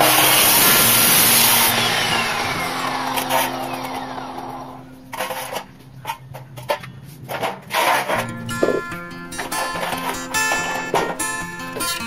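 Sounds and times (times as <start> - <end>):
cut-off saw cutting steel: 0.0 - 5.8
saw motor winding down: 0.0 - 5.8.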